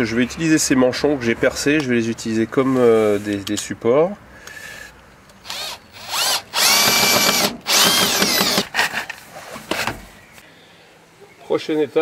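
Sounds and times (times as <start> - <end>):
cordless drill whining: 5.4 - 8.8.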